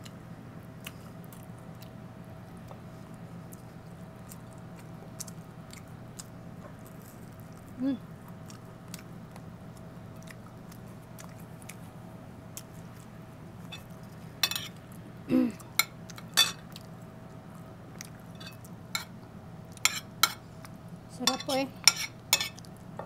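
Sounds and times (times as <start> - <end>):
faint steady hum: 0.0 - 23.0
spoon scraping a plate: 13.7 - 14.8, 21.3 - 22.6.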